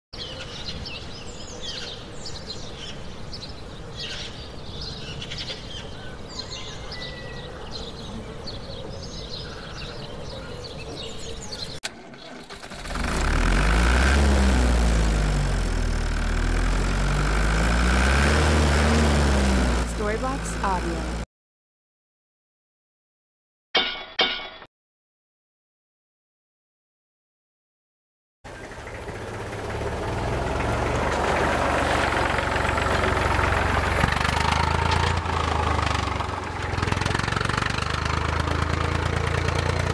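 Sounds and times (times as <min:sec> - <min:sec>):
birds chirping: 0:00.2 - 0:12.6, 0:28.5 - 0:34.5
outdoor ambience: 0:00.2 - 0:21.3, 0:28.5 - 0:39.9
low engine-like drone: 0:07.4 - 0:21.3, 0:28.5 - 0:39.9.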